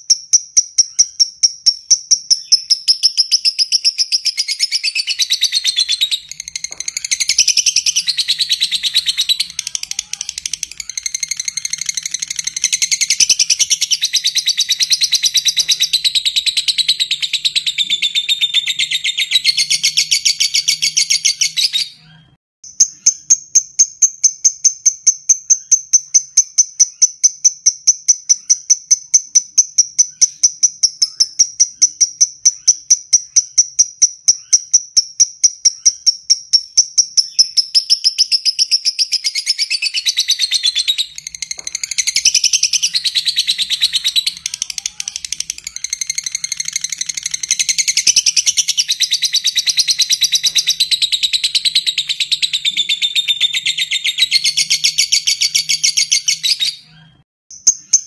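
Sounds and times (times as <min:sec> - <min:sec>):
bird shrill chattering: 0:37.2 - 0:56.9.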